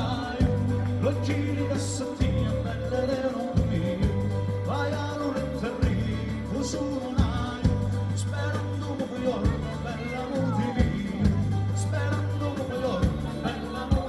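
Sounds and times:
folk band playing: 0.0s - 14.0s
person singing: 0.0s - 14.0s
regular drum beat: 0.0s - 14.0s
steady bass line: 0.0s - 14.0s.

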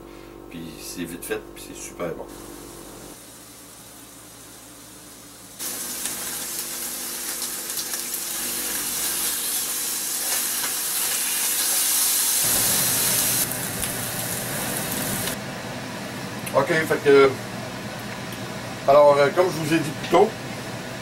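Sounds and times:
meat patties sizzling in pan: 3.1s - 15.4s.

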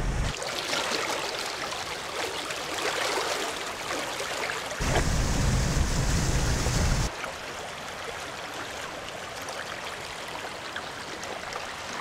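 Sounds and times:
loud low rumble with hiss: 0.0s - 0.3s, 4.8s - 7.1s
floodwater rushing: 0.0s - 12.0s.

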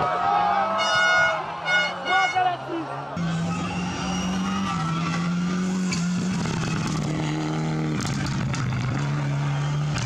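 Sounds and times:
rally car engine running hard: 3.2s - 10.0s.

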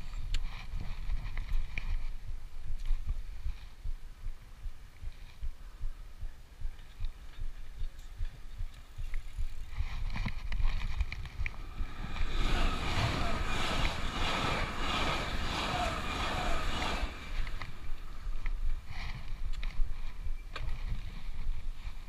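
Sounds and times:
steady rushing noise: 0.0s - 22.0s
wind buffeting microphone: 0.0s - 22.0s
light ticks: 4.9s - 9.6s.

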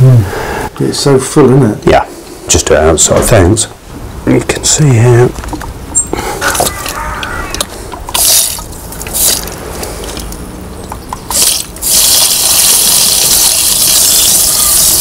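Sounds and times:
hose spray gun jetting water: 11.3s - 15.0s.

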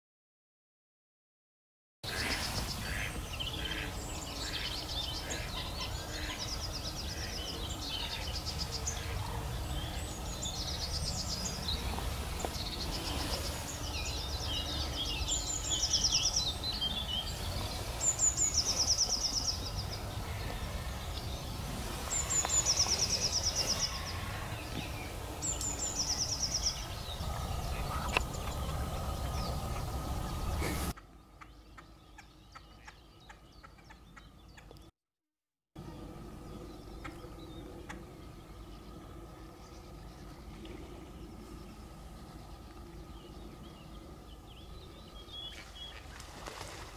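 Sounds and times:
small birds singing: 2.1s - 34.9s, 35.8s - 46.9s
low rumble: 19.3s - 30.9s.

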